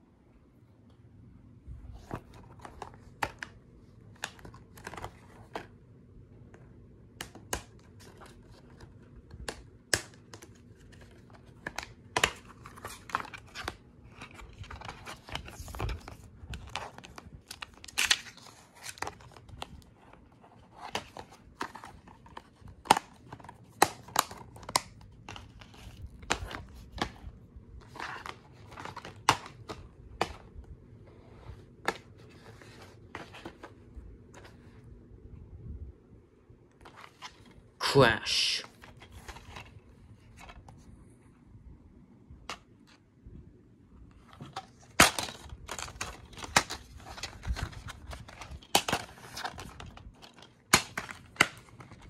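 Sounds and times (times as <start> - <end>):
plastic sleeve and paper rustling: 1.7 - 5.8, 7.2 - 35.0, 38.6 - 40.9, 44.1 - 52.0
plastic cases clicking and snapping: 7.1 - 19.8, 44.3 - 52.0.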